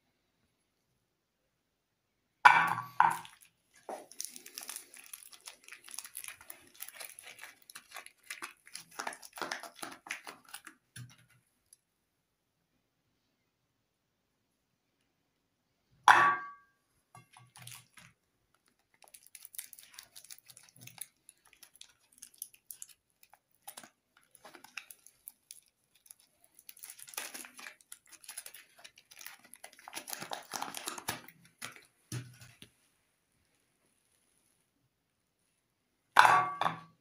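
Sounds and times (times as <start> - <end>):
paper wrapper crinkling: 3.0 - 11.8, 17.2 - 32.9.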